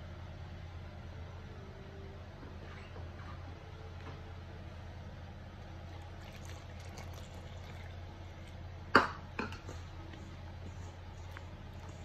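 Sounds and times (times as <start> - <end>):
steady low hum: 0.0 - 12.0
water pouring into flour: 5.9 - 8.6.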